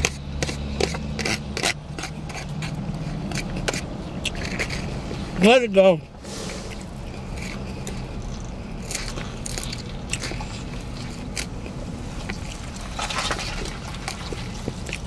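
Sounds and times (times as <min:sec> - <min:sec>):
person chewing salad: 0:00.0 - 0:05.3, 0:06.1 - 0:15.0
low hum: 0:06.0 - 0:15.0
crisp crunches: 0:06.5 - 0:15.0.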